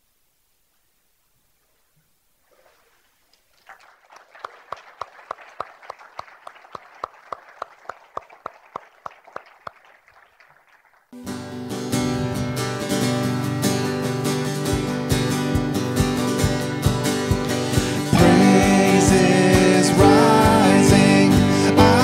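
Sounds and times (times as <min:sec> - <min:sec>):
crowd applauding: 0:03.4 - 0:11.2
person clapping steady beat: 0:03.7 - 0:10.9.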